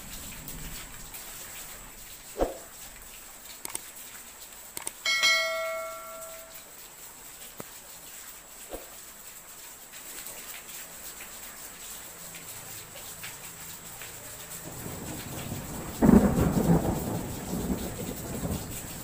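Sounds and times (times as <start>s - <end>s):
steady hiss: 0.0s - 19.0s
bell ding: 5.0s - 6.6s.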